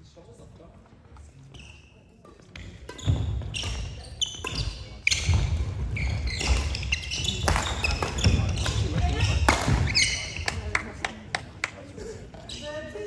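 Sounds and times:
shoes squeaking: 0:01.3 - 0:10.6, 0:12.4 - 0:13.0
racket hitting shuttlecock: 0:02.2 - 0:10.4.

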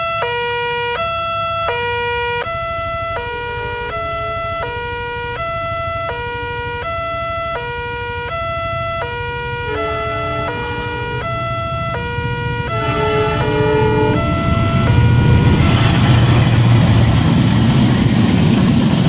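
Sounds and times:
overlapping warning tones: 0:00.0 - 0:18.2
train low rumble: 0:00.0 - 0:19.0
level-crossing alarm two tones: 0:01.8 - 0:16.3.

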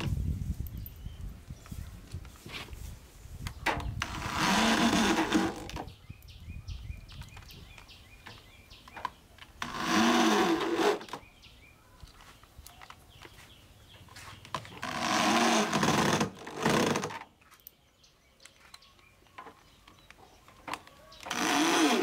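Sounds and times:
cordless drill driving screws: 0:04.0 - 0:05.8, 0:09.6 - 0:11.2, 0:14.8 - 0:17.2, 0:21.2 - 0:22.0.

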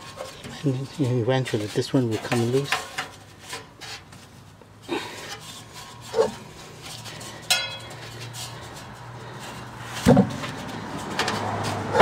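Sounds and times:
metal rubbing and scraping: 0:00.0 - 0:12.0
metallic clank with ring: 0:07.5 - 0:07.9
thump: 0:10.0 - 0:10.4.

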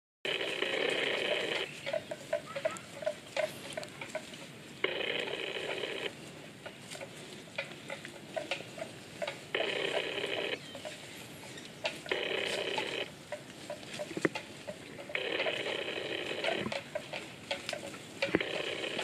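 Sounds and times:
buffalo tearing grass: 0:00.3 - 0:19.0
small clicks and crunches: 0:00.3 - 0:19.0.

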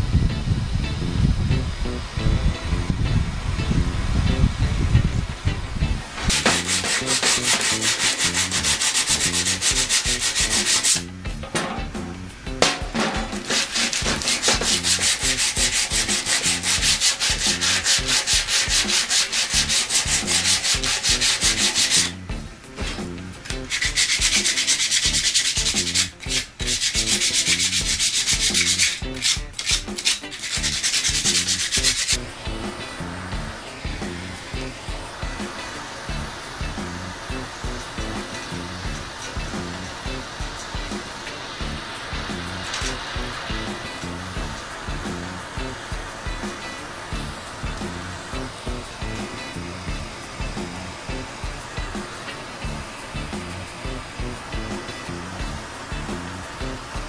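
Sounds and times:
sandpaper scraping on metal: 0:06.2 - 0:11.1, 0:13.0 - 0:22.2, 0:22.8 - 0:32.9, 0:37.4 - 0:45.6.

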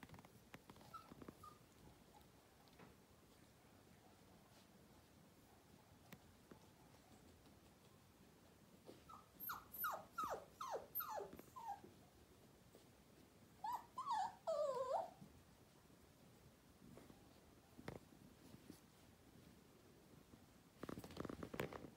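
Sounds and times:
whiny puppy yelps: 0:00.8 - 0:02.2, 0:08.9 - 0:11.9, 0:13.6 - 0:15.2
puppy yipping: 0:00.8 - 0:02.3, 0:08.9 - 0:11.9, 0:13.6 - 0:15.2.

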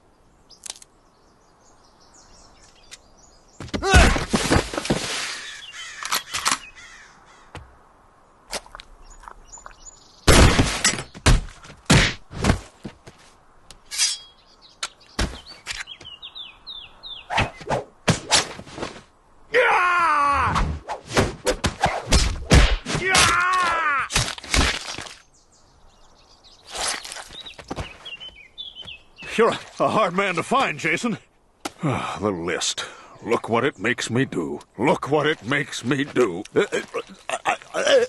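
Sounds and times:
cartoon punch impacts: 0:20.5 - 0:23.4.

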